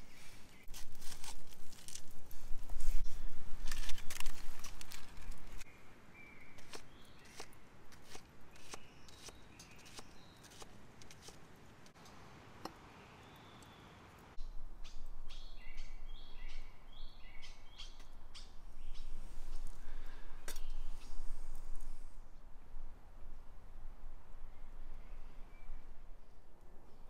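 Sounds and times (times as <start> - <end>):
songbirds chirping: 3.8 - 22.0.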